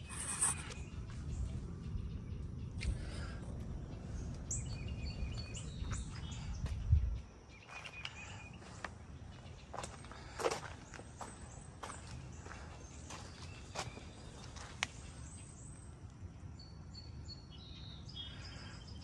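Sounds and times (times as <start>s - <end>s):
low rumble: 0.0s - 7.5s
small birds chirping: 0.0s - 19.0s.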